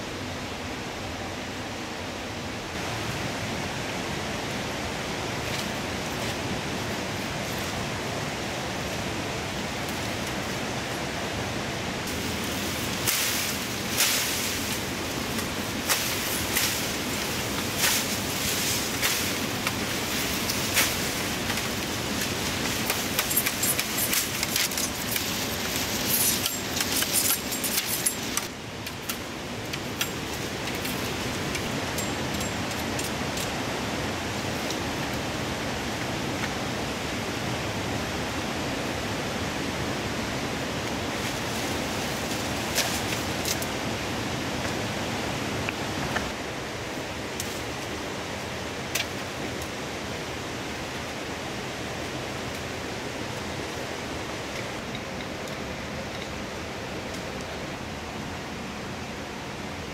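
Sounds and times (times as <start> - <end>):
river water rushing: 0.1 - 59.9.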